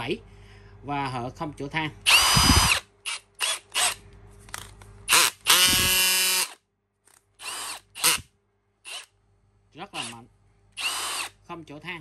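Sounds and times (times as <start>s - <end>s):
cordless drill whining: 2.1s - 4.0s, 5.1s - 6.6s, 7.4s - 8.2s, 8.9s - 9.1s, 10.0s - 10.2s, 10.8s - 11.3s.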